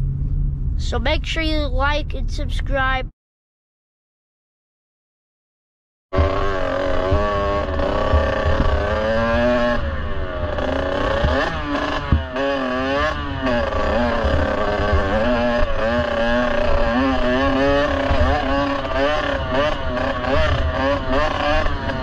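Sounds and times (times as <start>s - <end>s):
two-stroke motorcycle engine: 6.2s - 22.0s.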